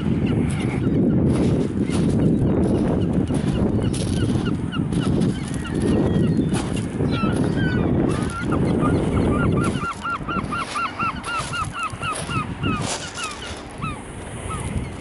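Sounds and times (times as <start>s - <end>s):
gull yelping calls: 7.0s - 14.8s.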